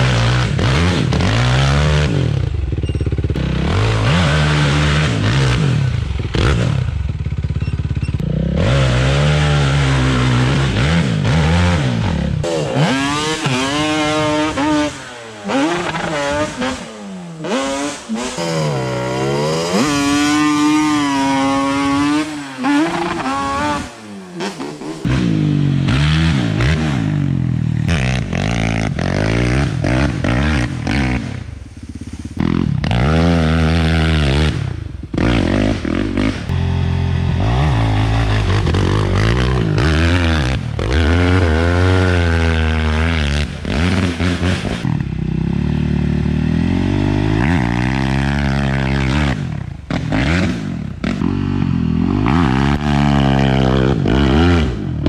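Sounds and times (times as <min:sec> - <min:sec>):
atv engines revving: 0:00.0 - 0:55.0.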